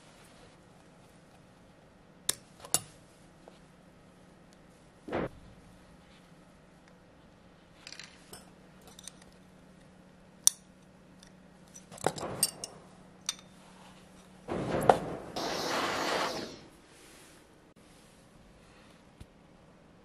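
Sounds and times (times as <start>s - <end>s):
pliers tapping metal wire: 2.3s - 3.0s, 7.8s - 13.6s.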